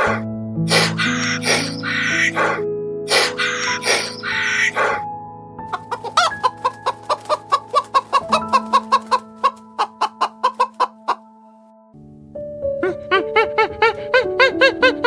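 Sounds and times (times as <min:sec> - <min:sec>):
soft piano music: 0:00.0 - 0:15.0
chickens clucking: 0:05.7 - 0:11.2.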